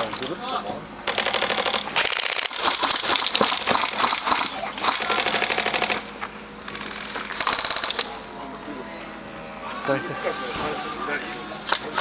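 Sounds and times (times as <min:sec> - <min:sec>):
toy guns firing bursts: 0:01.1 - 0:06.0, 0:07.3 - 0:08.0.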